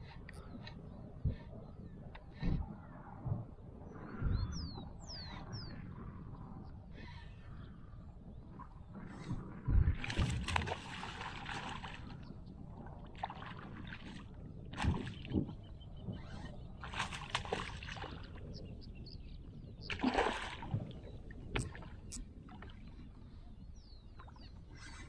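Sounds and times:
water splashing and sloshing: 0:08.6 - 0:25.0.

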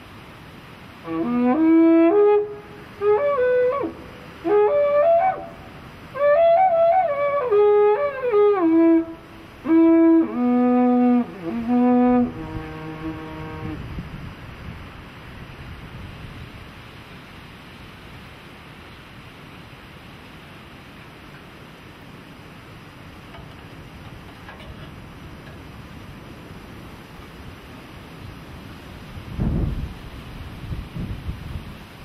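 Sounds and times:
war trumpet melodic phrases: 0:01.0 - 0:13.9.

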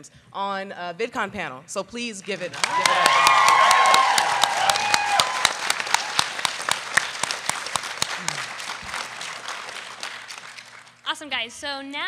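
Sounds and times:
audience applause: 0:02.5 - 0:11.0.

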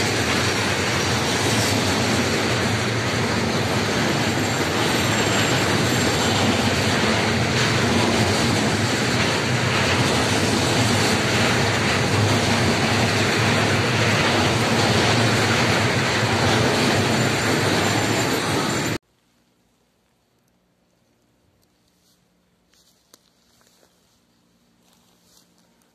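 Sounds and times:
freight train wheels rumbling: 0:00.0 - 0:19.0.

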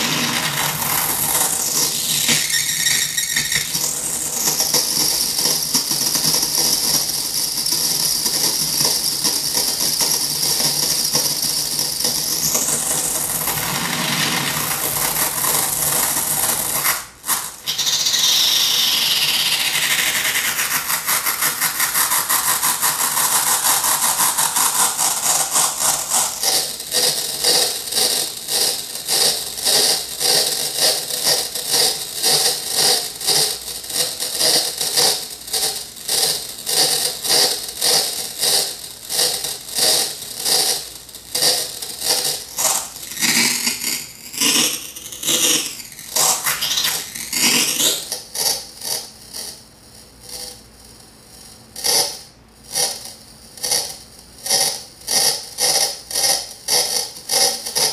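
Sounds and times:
distorted electronic toy sound: 0:00.0 - 0:35.2, 0:39.1 - 0:49.0.

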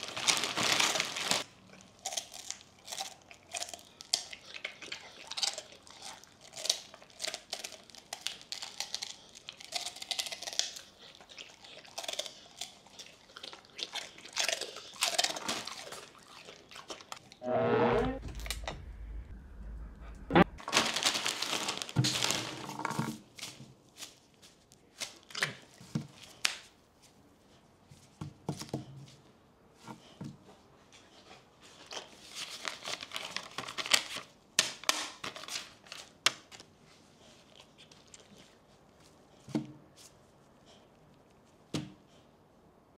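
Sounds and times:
plastic bag crinkling: 0:00.0 - 0:01.5, 0:20.6 - 0:23.1
pork rinds crunching: 0:00.0 - 0:17.2.

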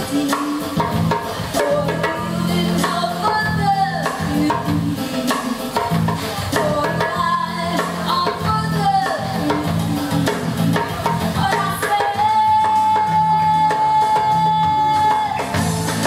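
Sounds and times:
steady percussion beat: 0:00.0 - 0:13.2, 0:14.8 - 0:16.0
keyboard accompaniment: 0:00.0 - 0:16.0
woman singing into microphone: 0:00.0 - 0:16.0.

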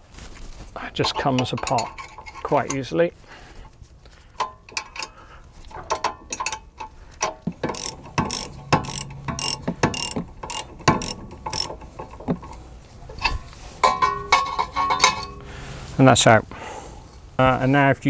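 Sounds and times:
metal clicks: 0:05.8 - 0:13.3
ratchet wrench clicking: 0:07.6 - 0:12.2.

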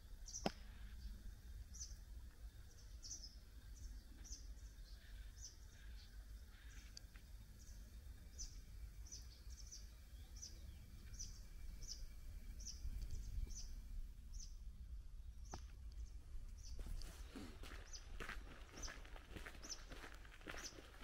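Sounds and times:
small bird calling: 0:00.2 - 0:02.0, 0:02.7 - 0:14.6
wind rumble on microphone: 0:10.8 - 0:15.1.

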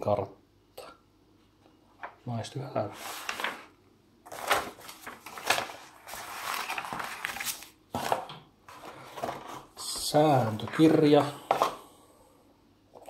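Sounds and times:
paper map crinkling: 0:02.9 - 0:11.8.

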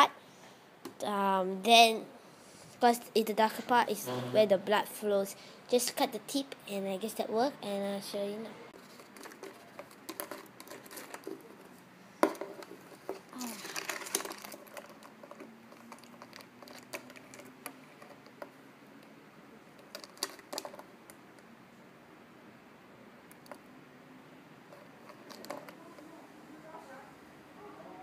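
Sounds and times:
rustling: 0:08.7 - 0:18.6.

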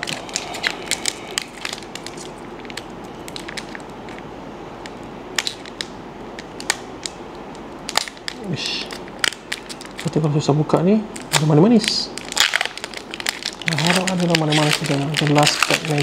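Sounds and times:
foil wrapper crinkling: 0:00.0 - 0:04.2, 0:07.8 - 0:10.4, 0:11.1 - 0:16.0.

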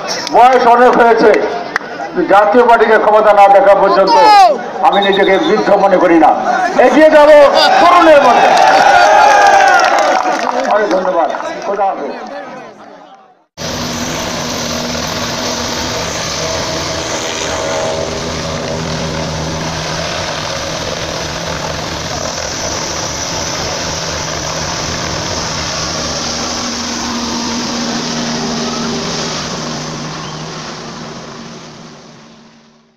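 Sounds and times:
helicopter rotor and turbine: 0:13.6 - 0:32.9.

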